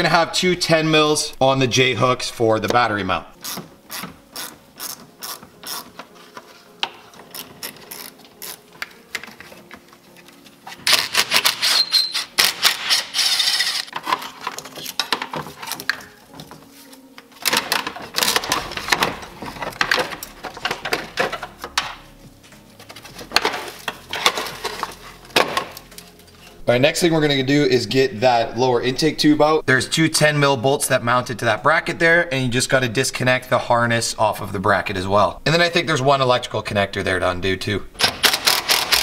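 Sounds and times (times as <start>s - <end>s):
ratchet wrench clicking: 3.4s - 5.9s, 10.9s - 13.9s.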